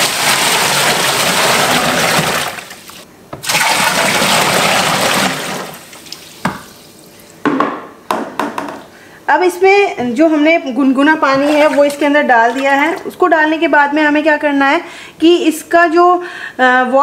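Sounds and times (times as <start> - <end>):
water pouring from bucket: 0.0 - 6.2
water sloshing in tub: 0.0 - 6.9, 11.2 - 13.1.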